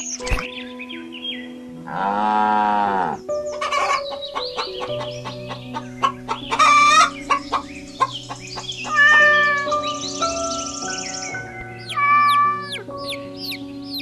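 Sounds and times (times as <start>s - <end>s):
background music: 0.0s - 14.0s
hens clucking: 3.5s - 9.9s.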